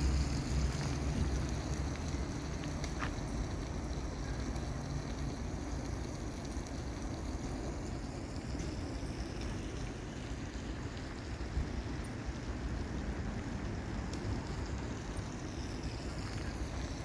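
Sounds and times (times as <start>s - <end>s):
flowing river water: 0.0s - 17.0s
wind: 0.0s - 17.0s.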